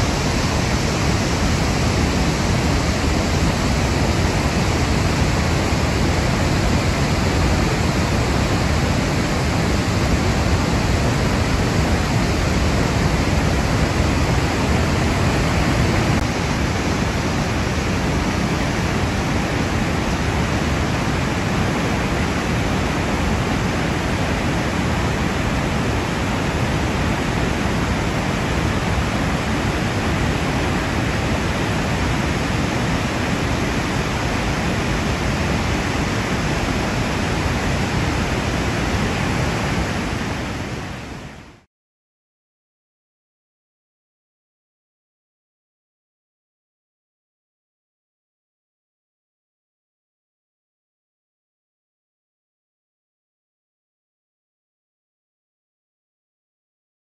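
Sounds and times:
waterfall roaring: 0.0s - 41.7s.

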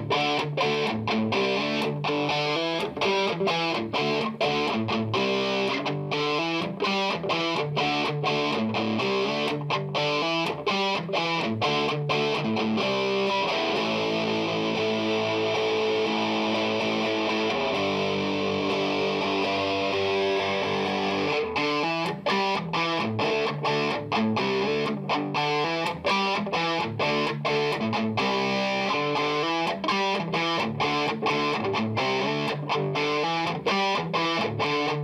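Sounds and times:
guitar chords music: 0.0s - 35.0s.

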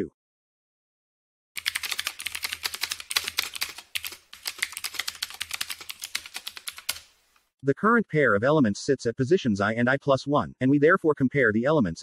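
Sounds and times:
rapid keyboard typing: 1.6s - 7.2s.

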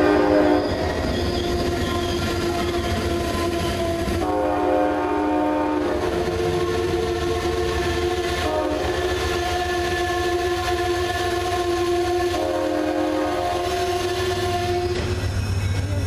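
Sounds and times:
locomotive air horn blast: 0.0s - 15.2s
train rumbling past: 0.0s - 16.0s.

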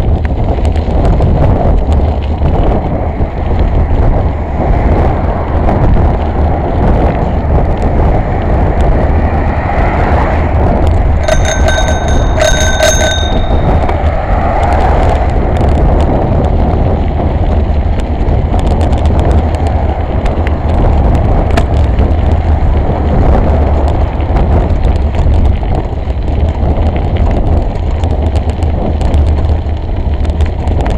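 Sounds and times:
wind rush on microphone: 0.0s - 30.9s
bicycle bell ringing: 11.2s - 14.2s.

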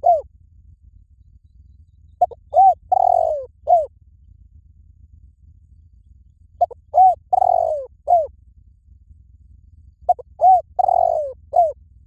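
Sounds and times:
dove cooing: 0.0s - 0.3s, 2.2s - 3.9s, 6.6s - 8.4s, 10.1s - 11.8s.

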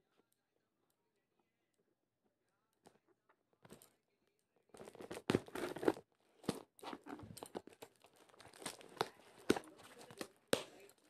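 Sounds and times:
parcel wrapping tearing and crinkling: 4.8s - 11.0s.

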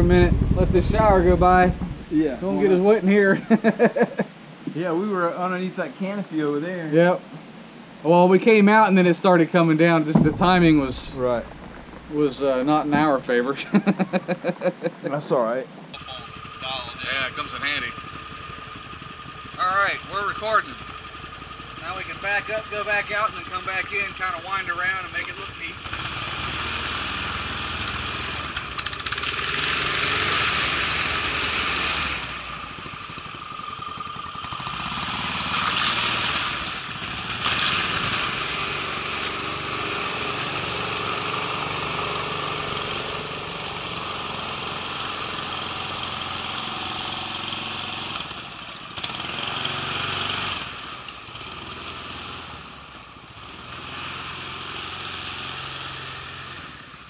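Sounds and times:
small gas engines revving: 0.0s - 3.8s, 10.1s - 15.3s, 15.9s - 57.0s.

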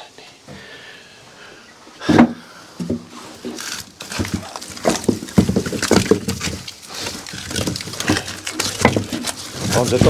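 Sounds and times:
firewood logs knocking together: 2.0s - 10.0s
wooden scrapes: 2.0s - 10.0s.

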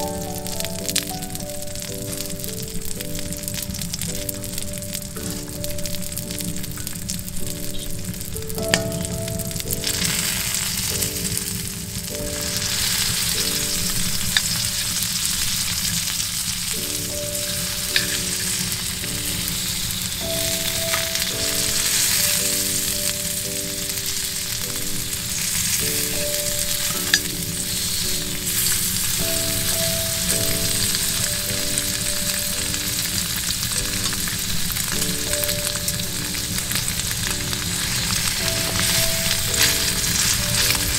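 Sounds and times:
soft background music: 0.0s - 40.9s
tofu sizzling in hot oil: 8.9s - 40.9s.

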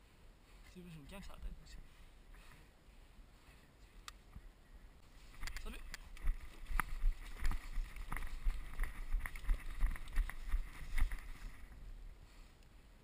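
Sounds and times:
running footsteps in dry grass: 5.0s - 12.4s.

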